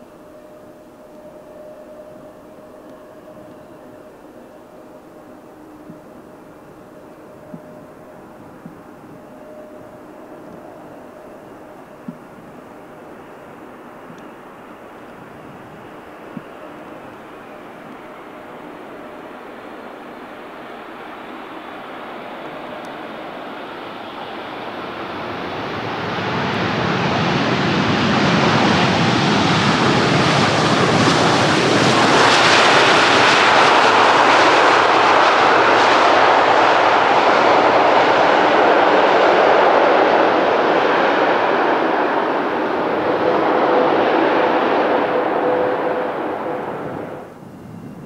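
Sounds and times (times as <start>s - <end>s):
jet engine roar: 5.7s - 48.0s
steady tone: 33.5s - 47.6s.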